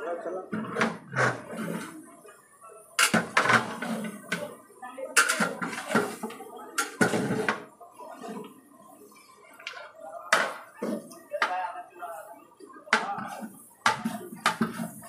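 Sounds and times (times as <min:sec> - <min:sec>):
metal ladle scraping a metal pot: 0:00.5 - 0:02.0, 0:05.2 - 0:07.6.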